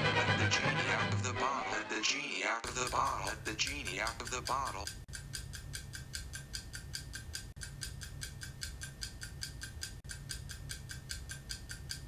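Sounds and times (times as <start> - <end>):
rapid mechanical ticking: 2.6 - 12.0.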